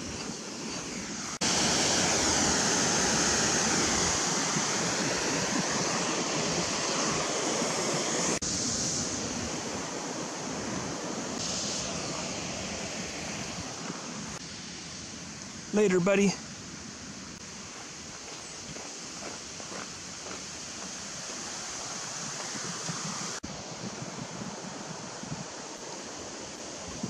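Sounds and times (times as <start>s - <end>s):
rushing water: 0.0s - 27.0s.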